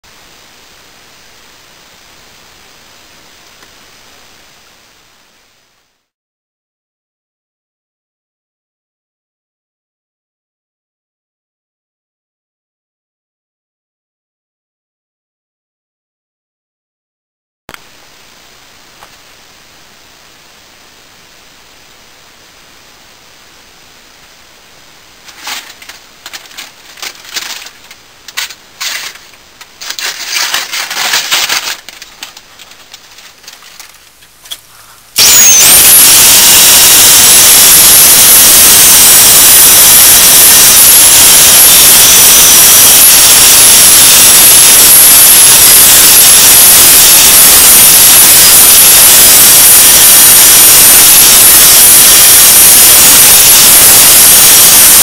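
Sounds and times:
handling knocks and shuffling: 25.2 - 34.9.

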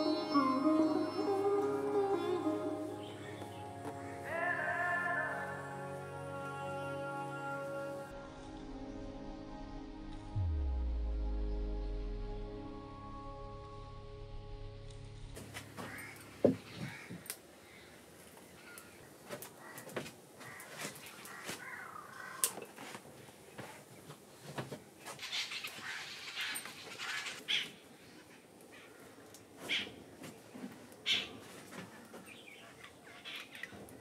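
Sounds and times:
birds calling: 0.0 - 5.7, 15.7 - 22.6, 25.2 - 30.1, 30.9 - 34.0
crows cawing: 15.8 - 22.7, 25.3 - 27.8, 28.7 - 30.0.

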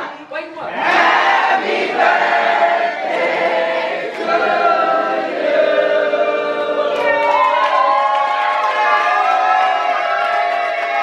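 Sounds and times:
group singing in unison: 0.7 - 7.3.

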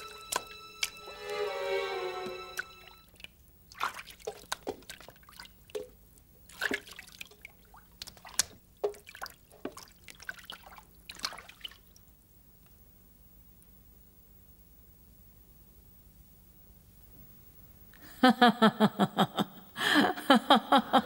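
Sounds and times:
liquid dripping and splashing: 3.1 - 12.0.

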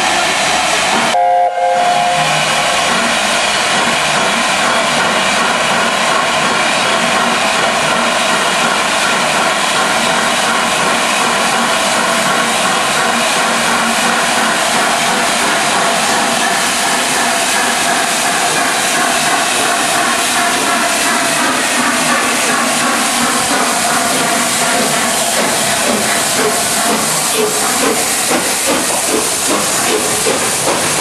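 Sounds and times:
steam hissing from safety valves: 10.7 - 31.0.

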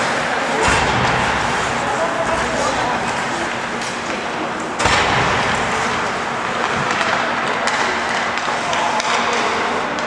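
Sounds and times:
sticks and puck clicking: 6.4 - 10.0.

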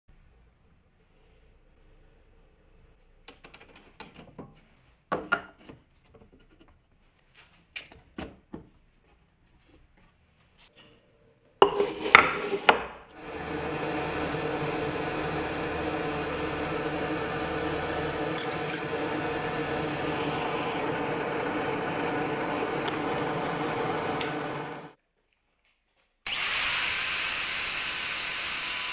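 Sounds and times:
drill press humming: 13.2 - 25.0.

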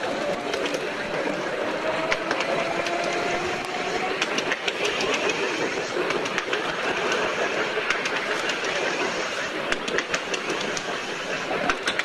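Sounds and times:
rail joint clicks: 0.0 - 12.0
tram wheels rumbling on rail: 0.0 - 12.0.

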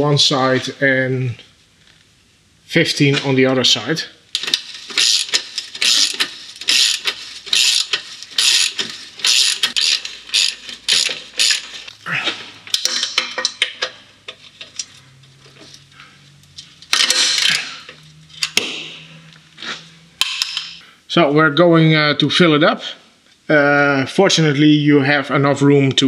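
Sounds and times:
hand ratchet clicking: 4.4 - 11.9.

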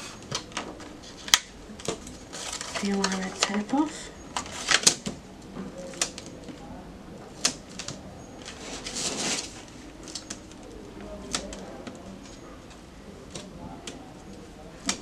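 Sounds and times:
tape backing peeling: 0.0 - 5.2, 7.3 - 12.4
cardstock tapping: 14.8 - 15.0.

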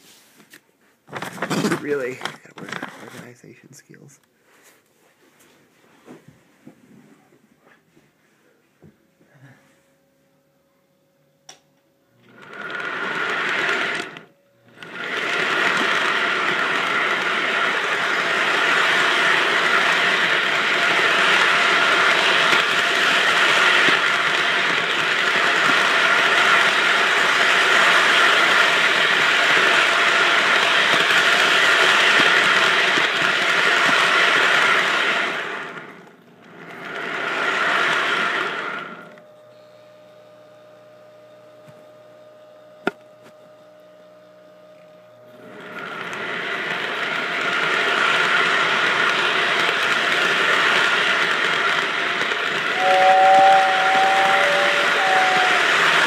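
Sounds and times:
toy train motor whirring: 12.2 - 39.2, 45.6 - 56.0.

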